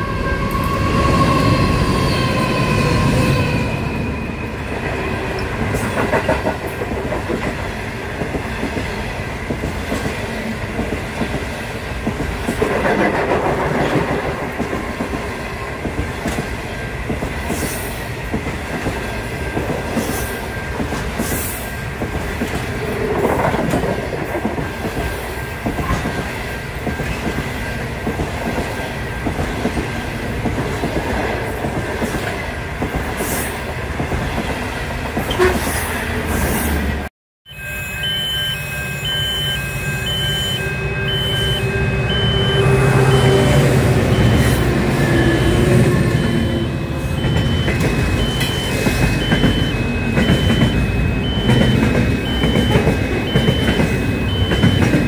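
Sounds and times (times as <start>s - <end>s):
high wheel squeals: 0.0s - 5.2s, 37.5s - 55.0s
train carriages rolling past: 0.0s - 37.1s, 37.8s - 55.0s.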